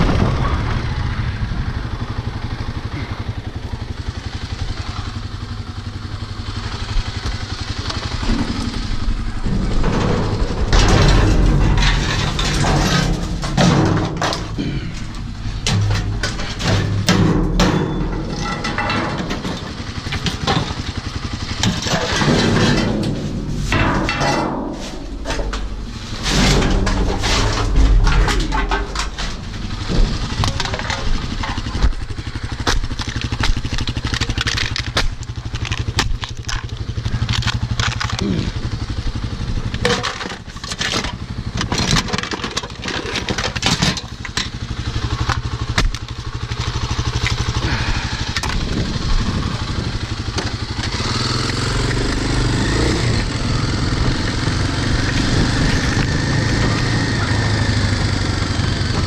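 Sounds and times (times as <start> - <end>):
motorcycle engine idling: 0.0 - 23.8, 24.6 - 59.0
scrap metal clanking into bins: 9.4 - 20.8, 21.6 - 31.7, 39.8 - 44.4.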